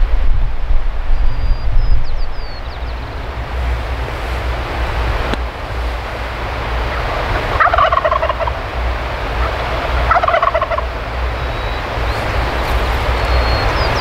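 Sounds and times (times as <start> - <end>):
low wind rumble: 0.0 - 14.0
turkey gobbling: 6.9 - 8.7, 9.3 - 13.9.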